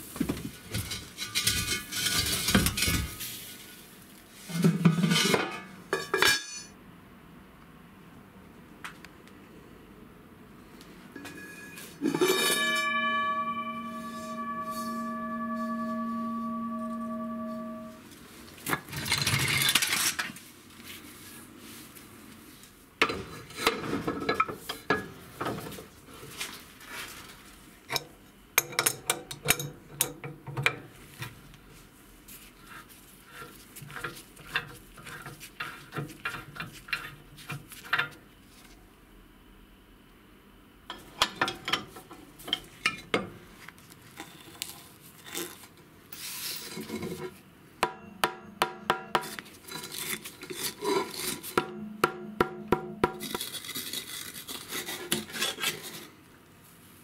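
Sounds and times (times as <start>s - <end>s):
scraping and rubbing metal: 0.7s - 3.3s, 4.4s - 6.2s, 11.4s - 18.0s, 32.3s - 38.2s.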